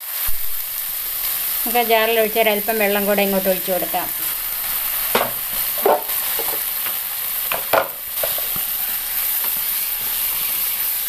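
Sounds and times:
sauce sizzling in a wok: 0:00.0 - 0:11.0
spatula scraping a pan: 0:04.2 - 0:10.8.

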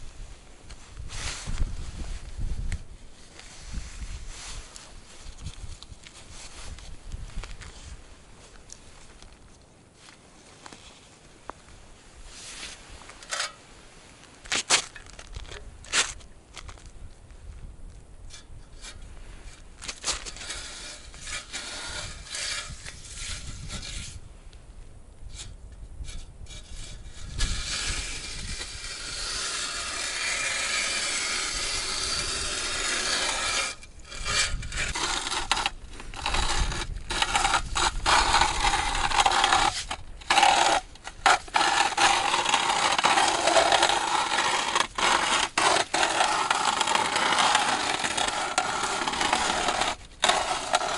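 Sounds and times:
ice auger scraping ice: 0:12.3 - 0:13.6, 0:18.3 - 0:24.3, 0:25.3 - 0:50.9.

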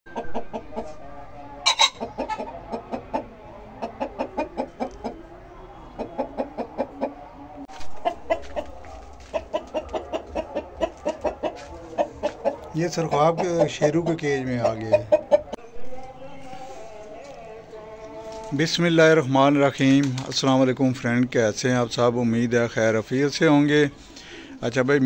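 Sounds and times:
chickens clucking: 0:00.1 - 0:18.5
harsh chicken call: 0:01.6 - 0:05.2.

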